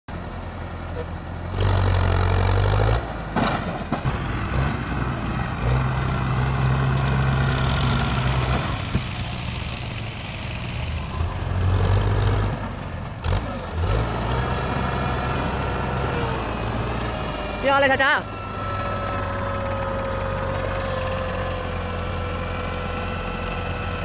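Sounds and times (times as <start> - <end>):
tractor engine under load: 0.1 - 24.0.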